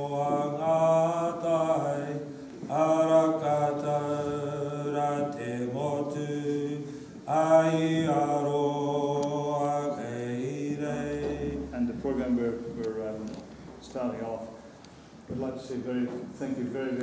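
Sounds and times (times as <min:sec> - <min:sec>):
man chanting: 0:09.7 - 0:14.6.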